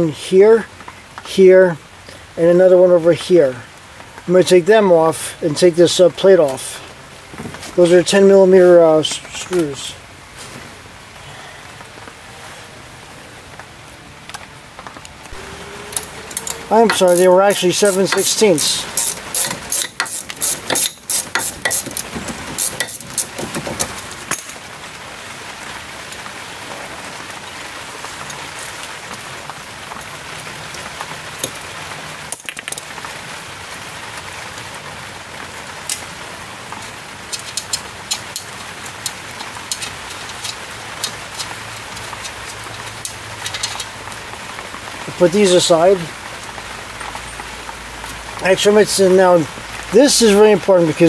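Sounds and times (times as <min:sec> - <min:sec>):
steady hiss: 0:00.0 - 0:12.2, 0:15.2 - 0:25.1, 0:34.5 - 0:51.0
hand ratchet clicking: 0:16.0 - 0:23.3.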